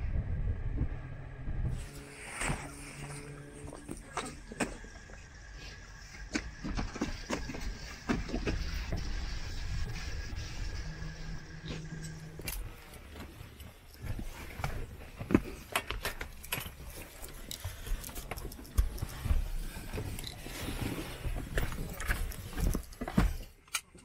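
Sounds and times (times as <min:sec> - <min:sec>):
low rumble: 0:00.0 - 0:15.5
people moving about in a cabin: 0:01.7 - 0:24.0.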